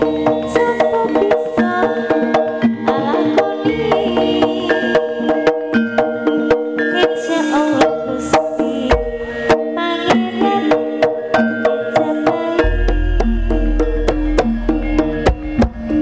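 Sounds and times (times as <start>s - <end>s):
ringing gamelan notes: 0.0s - 16.0s
drums beating quickly: 12.4s - 16.0s.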